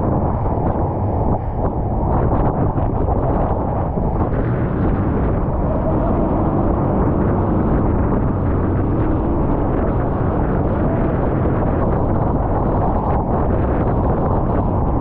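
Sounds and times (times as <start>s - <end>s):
speedboat engine whine: 0.0s - 15.0s
wind buffeting microphone: 0.0s - 15.0s.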